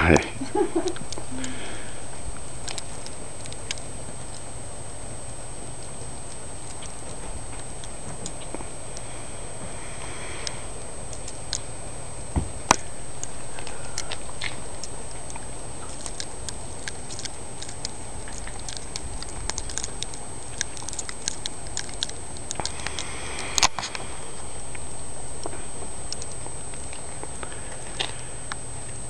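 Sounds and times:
faint high whine: 0.0s - 29.0s
low outdoor rumble: 0.0s - 29.0s
light ticking and pattering: 12.7s - 29.0s.

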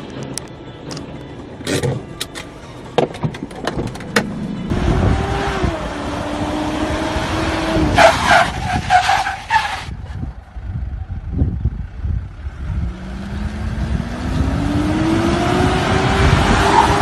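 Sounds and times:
car engine accelerating: 4.2s - 8.4s, 12.5s - 17.0s.

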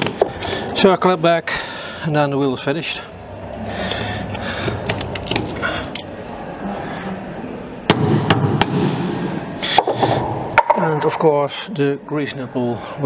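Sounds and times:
handling and scraping noise: 3.2s - 7.1s.

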